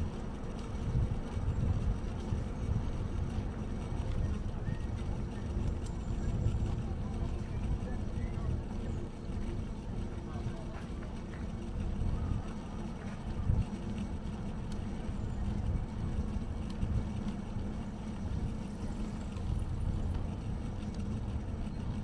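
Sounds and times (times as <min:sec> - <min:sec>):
bicycle riding rumble: 0:00.0 - 0:22.0.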